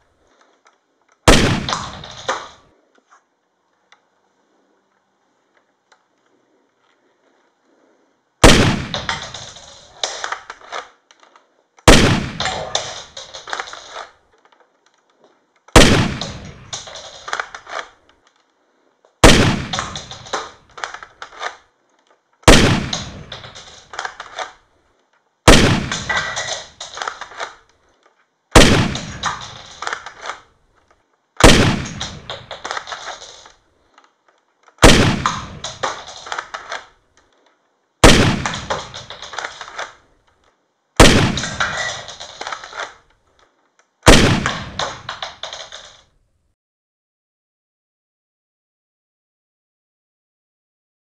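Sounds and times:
shotgun blasts: 1.2s - 2.6s, 8.4s - 10.8s, 11.8s - 14.1s, 15.7s - 17.8s, 19.2s - 21.0s, 22.4s - 24.4s, 25.4s - 27.5s, 28.5s - 30.4s, 31.4s - 33.5s, 34.8s - 36.8s, 38.0s - 39.9s, 41.0s - 42.9s, 44.0s - 45.9s.

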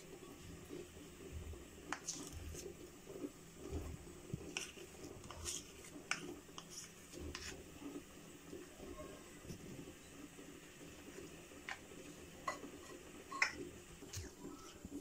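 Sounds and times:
spoon scraping and clicking: 1.9s - 2.6s, 4.5s - 7.6s, 12.5s - 14.2s.

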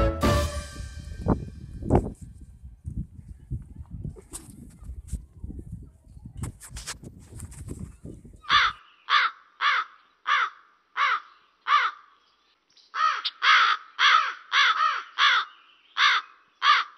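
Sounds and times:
wind rumble on microphone: 0.7s - 8.8s
crow cawing: 8.5s - 12.1s, 13.0s - 16.9s.

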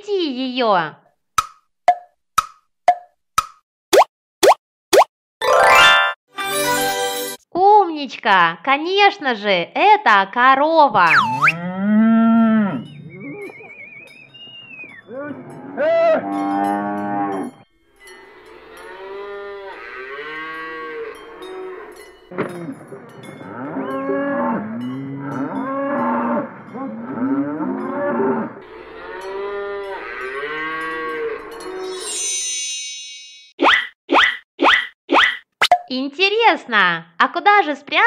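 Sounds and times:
cows mooing: 11.2s - 13.8s, 15.0s - 17.6s, 18.4s - 31.8s.

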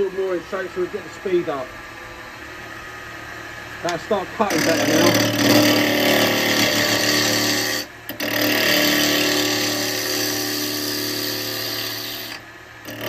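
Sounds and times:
lathe motor hum: 0.0s - 13.0s
turning tool cutting wood: 3.8s - 13.0s.

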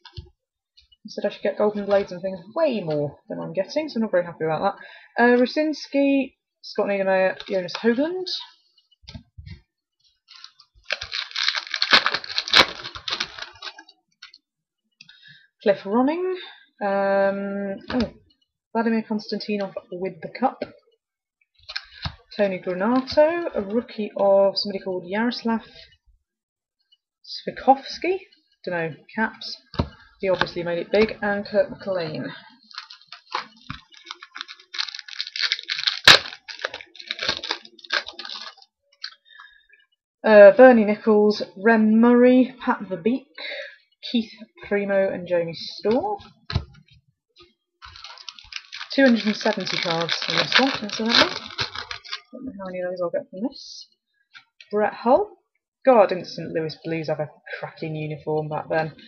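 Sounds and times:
foil wrapper crinkling and tearing: 10.3s - 13.9s, 21.6s - 23.2s, 31.9s - 39.5s, 47.8s - 52.3s.

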